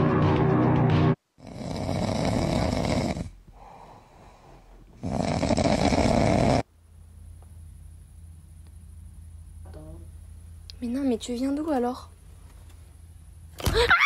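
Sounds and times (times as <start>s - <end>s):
dog snoring: 1.4s - 3.4s, 5.0s - 6.7s.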